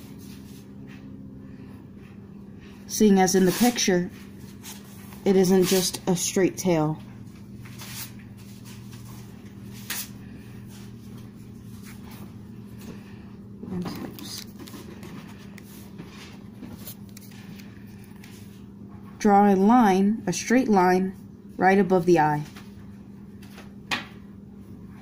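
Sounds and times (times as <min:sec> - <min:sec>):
steady low hum: 0:00.0 - 0:25.0
paper handling: 0:13.8 - 0:18.5.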